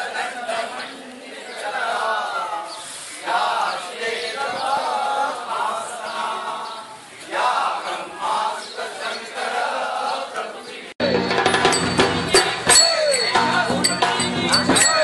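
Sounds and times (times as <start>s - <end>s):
group of voices chanting: 0.0s - 11.1s.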